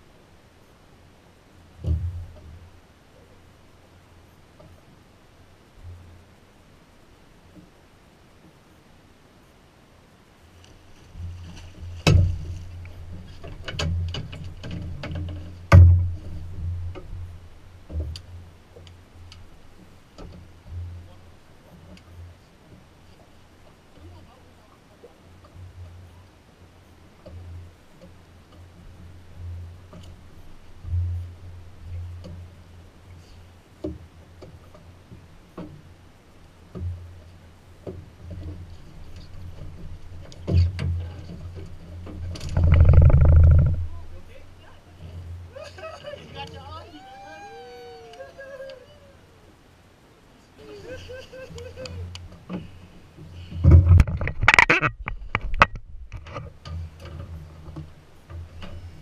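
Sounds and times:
low steady hum: 0.0s - 59.0s
knocks and clicks against boat: 1.8s - 2.8s, 4.6s - 5.0s, 10.7s - 24.1s, 25.2s - 26.4s, 27.1s - 33.2s, 33.8s - 45.5s, 51.5s - 59.0s
low bass line: 42.2s - 44.6s.

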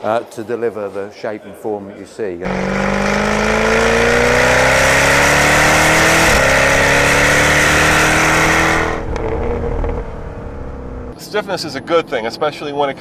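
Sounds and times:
car engine accelerating hard: 2.4s - 11.2s.

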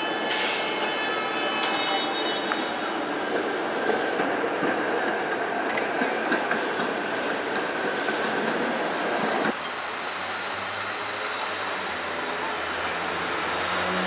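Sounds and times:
road traffic: 0.0s - 14.0s
streetcar wheels rumbling on rail: 0.0s - 14.0s
rail clicks: 1.6s - 9.6s.

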